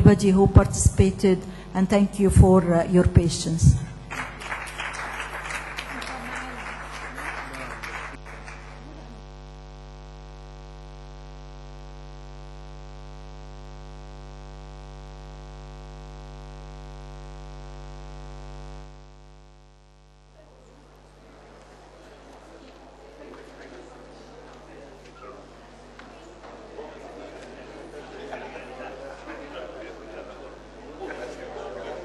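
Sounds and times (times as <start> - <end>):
electrical mains hum: 0.0 - 32.0
applause: 4.0 - 9.4.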